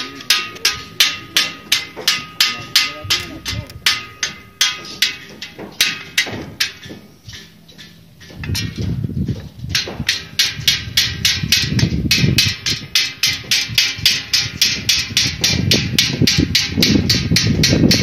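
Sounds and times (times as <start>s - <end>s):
hammering: 0.0s - 18.0s
low rumble: 8.1s - 18.0s.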